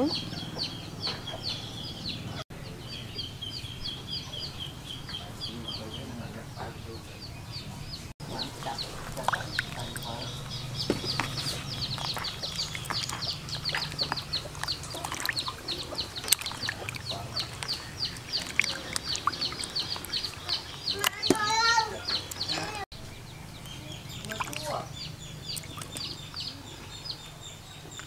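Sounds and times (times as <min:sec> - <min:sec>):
chicks peeping: 0:00.0 - 0:28.0
water sloshing in a basin: 0:08.2 - 0:22.7, 0:24.1 - 0:26.2.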